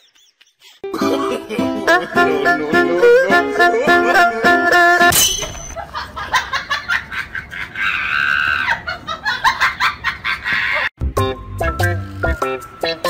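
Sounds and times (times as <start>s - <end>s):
person laughing: 0.0s - 4.6s, 5.8s - 10.9s
plucked-string music: 0.9s - 5.1s.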